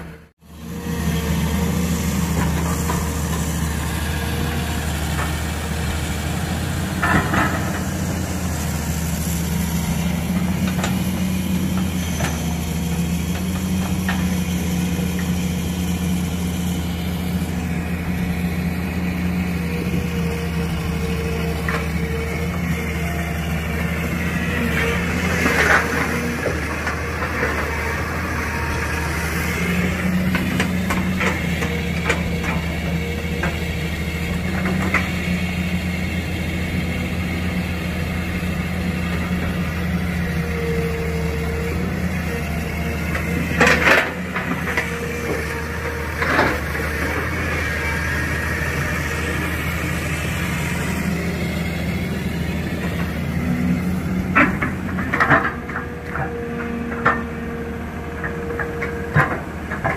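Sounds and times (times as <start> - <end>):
excavator diesel engine droning: 0.0 - 59.9.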